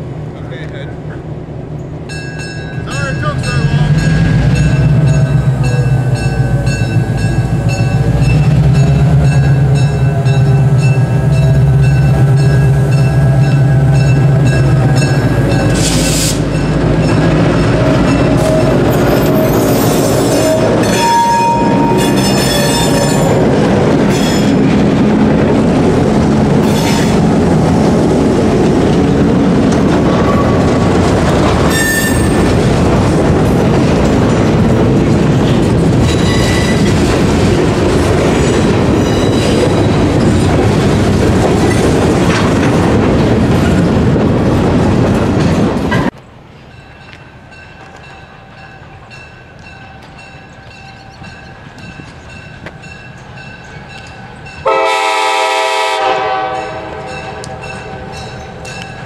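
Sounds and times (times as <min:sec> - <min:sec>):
wheels clacking over rail joints: 0:02.1 - 0:46.3
train wheel squeals: 0:03.5 - 0:16.6, 0:17.8 - 0:23.4, 0:26.6 - 0:27.2, 0:31.7 - 0:32.5, 0:36.0 - 0:37.0, 0:38.9 - 0:40.4.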